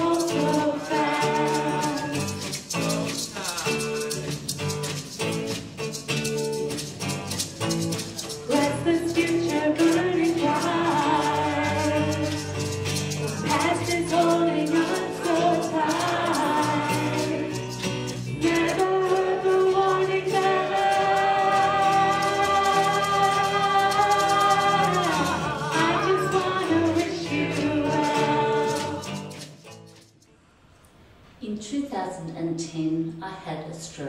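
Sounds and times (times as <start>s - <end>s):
person singing long notes: 0.0s - 2.6s, 18.4s - 29.2s.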